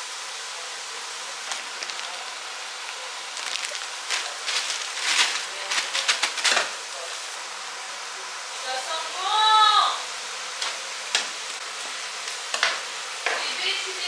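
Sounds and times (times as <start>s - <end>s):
vegetables sizzling in a frying pan: 0.0s - 14.0s
plastic bag rustling: 1.4s - 7.1s.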